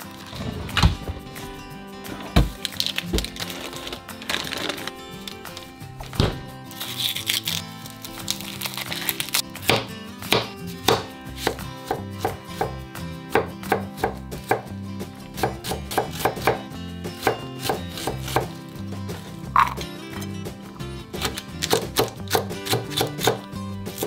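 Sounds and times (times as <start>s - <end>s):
knife chopping on cutting board: 9.6s - 12.7s, 15.4s - 18.6s, 21.2s - 24.0s.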